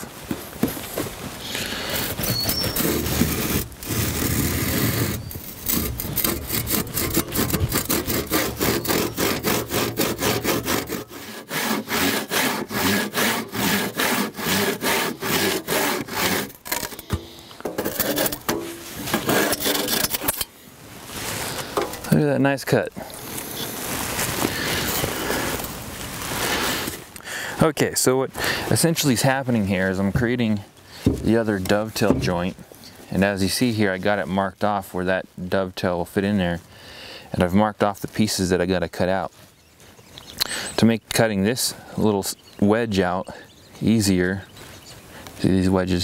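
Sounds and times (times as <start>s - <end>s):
hand saw cutting wood: 1.5s - 20.5s.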